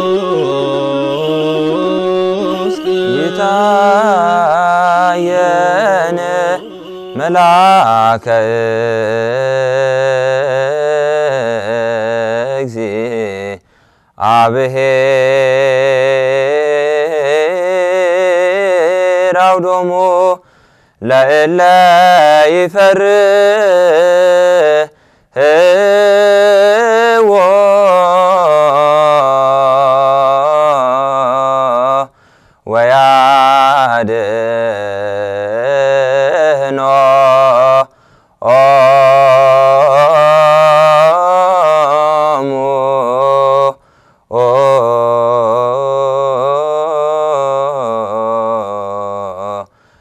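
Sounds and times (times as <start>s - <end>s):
held low drone note: 0.0s - 7.7s
man chanting a hymn: 0.0s - 13.6s, 21.0s - 49.7s.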